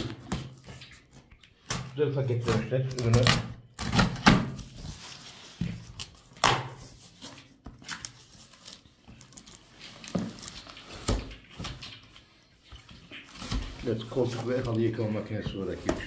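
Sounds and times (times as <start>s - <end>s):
cardboard packaging rustling: 4.0s - 16.0s.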